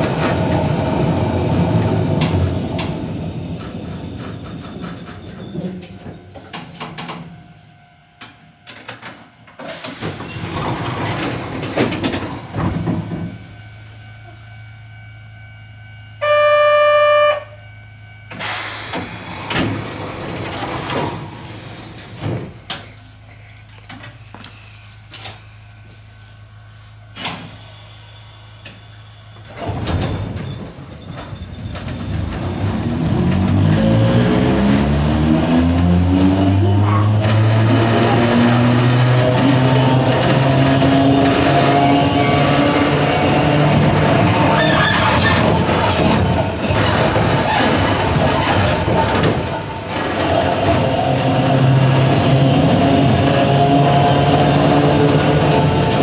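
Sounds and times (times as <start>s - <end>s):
electric train humming: 0.0s - 29.8s, 30.8s - 56.0s
train motor whine rising: 1.8s - 22.7s, 31.6s - 56.0s
loud beep: 16.0s - 18.6s.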